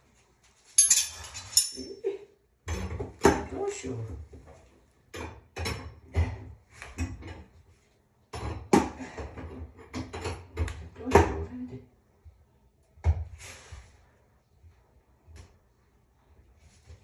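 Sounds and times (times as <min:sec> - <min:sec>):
hard objects knocking and clattering: 0:08.3 - 0:11.4.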